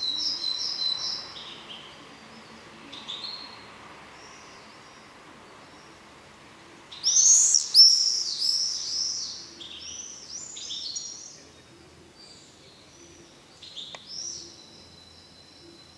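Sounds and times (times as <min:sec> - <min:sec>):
songbird chirping: 0:00.0 - 0:15.9.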